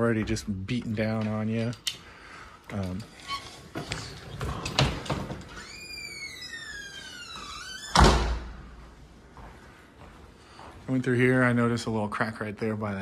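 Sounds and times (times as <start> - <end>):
door hinge squealing: 3.1 - 8.1
door shutting with heavy thud: 7.4 - 8.7.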